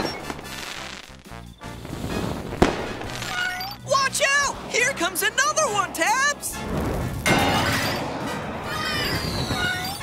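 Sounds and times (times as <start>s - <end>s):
falling whistling tones: 0.0s - 0.6s, 1.2s - 2.4s, 8.8s - 10.0s
background music: 0.0s - 10.0s.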